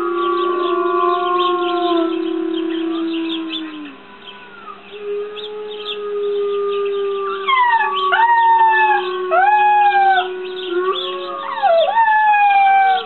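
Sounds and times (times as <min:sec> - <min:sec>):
puppy howling: 0:00.0 - 0:13.0
steady low held tone: 0:00.0 - 0:13.0.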